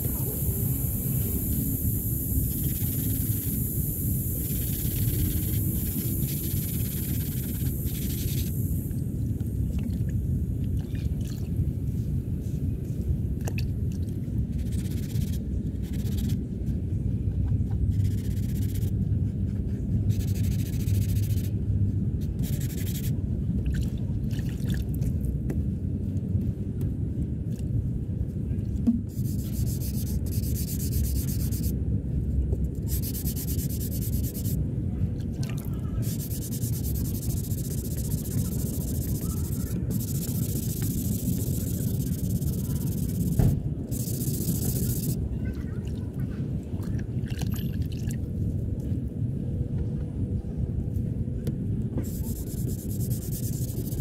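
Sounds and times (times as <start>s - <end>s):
steady low rumble: 0.0s - 54.0s
hand sanding: 29.1s - 31.7s, 32.8s - 34.6s, 36.0s - 45.2s, 52.0s - 54.0s.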